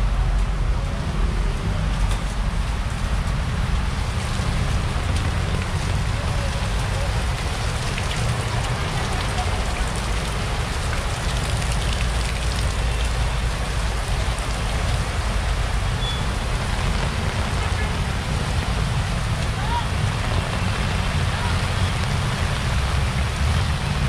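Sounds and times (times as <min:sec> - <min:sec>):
heavy rain pouring: 0:00.0 - 0:24.0.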